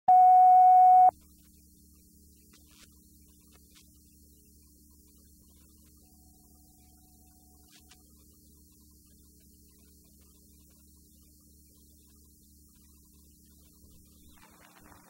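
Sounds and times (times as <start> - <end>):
electronic test tone: 0.0 - 1.1
faint steady hum: 0.1 - 15.0.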